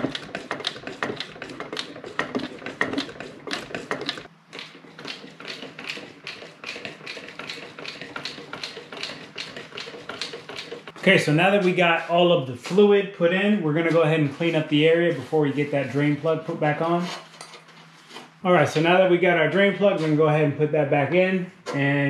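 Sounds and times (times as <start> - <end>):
hand pump clicking strokes: 0.0 - 11.0.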